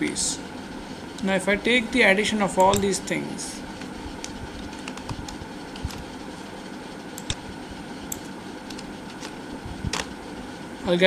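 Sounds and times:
steady background hum: 0.0s - 11.0s
mouse clicking: 2.6s - 2.9s, 7.2s - 7.4s
computer keyboard typing: 4.2s - 6.0s, 7.2s - 7.4s, 8.1s - 9.3s.

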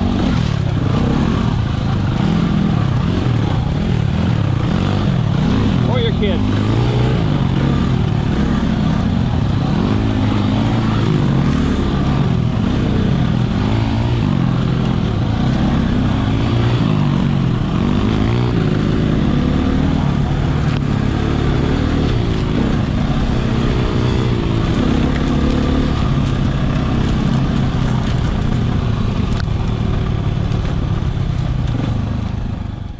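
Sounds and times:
dirt bike engine revving: 0.0s - 32.3s.

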